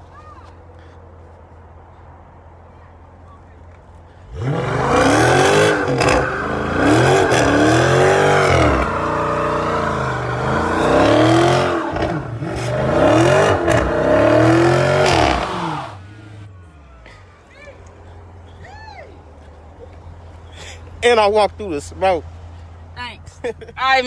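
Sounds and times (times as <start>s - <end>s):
car engine revving: 4.2s - 16.6s
tyres squealing on pavement: 5.7s - 13.0s.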